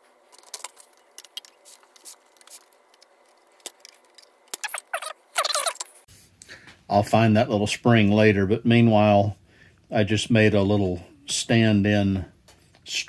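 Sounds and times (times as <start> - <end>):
sped-up squeaky voice: 4.6 - 5.9.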